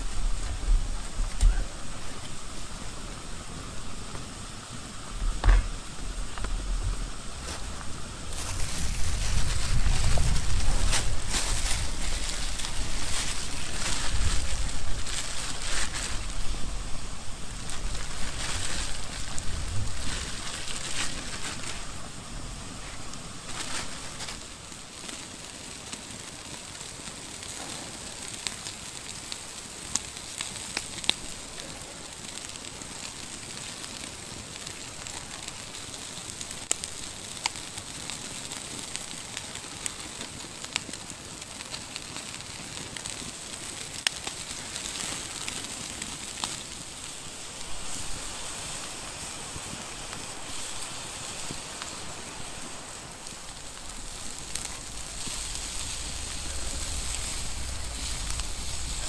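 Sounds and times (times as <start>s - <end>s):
campfire crackling and popping: 0.0s - 59.0s
low rumble: 53.6s - 59.0s.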